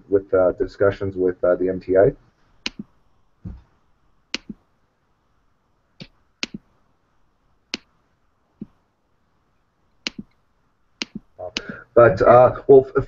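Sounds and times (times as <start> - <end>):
sharp dry clicks: 2.6 - 2.9, 4.3 - 4.6, 6.0 - 6.7, 7.7 - 8.0, 10.0 - 10.4, 11.0 - 11.8.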